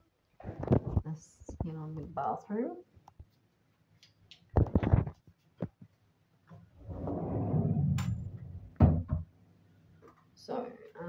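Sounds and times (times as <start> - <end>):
low rumbling handling noise: 6.8 - 9.3.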